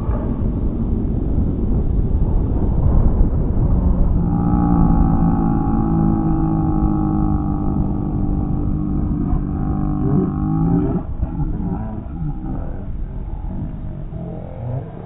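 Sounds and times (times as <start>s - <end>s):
wind on microphone: 0.0s - 15.0s
motor whine: 4.0s - 15.0s.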